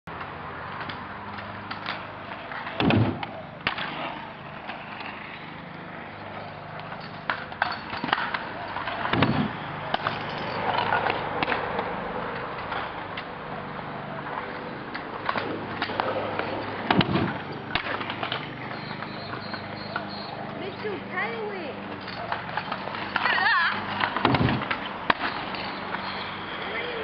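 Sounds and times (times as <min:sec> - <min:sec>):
scooter wheels rolling: 0:00.1 - 0:27.0
heavy thuds of scooter landings: 0:02.6 - 0:04.2, 0:07.3 - 0:10.3, 0:15.2 - 0:19.5, 0:22.2 - 0:25.6.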